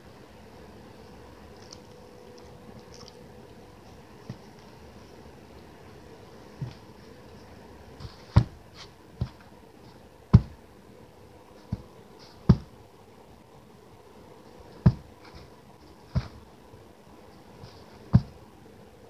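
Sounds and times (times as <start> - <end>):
soft thumps of patting: 8.0 - 8.6, 10.3 - 10.6, 11.6 - 12.7, 14.8 - 15.5, 16.1 - 16.4, 18.1 - 18.4.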